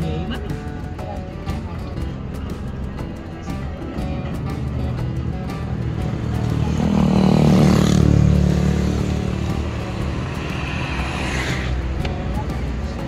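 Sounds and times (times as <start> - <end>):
motorcycle approaching: 4.8 - 13.0
vehicle engine passing: 5.2 - 13.0.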